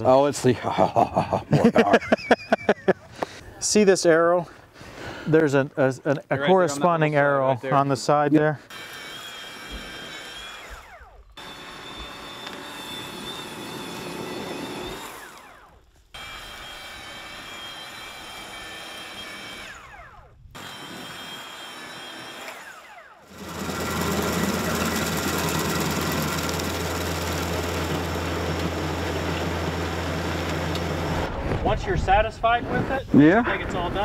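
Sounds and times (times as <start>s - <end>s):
motor whirring rotary brush: 8.6s - 31.3s
stump grinder grinding: 8.6s - 31.3s.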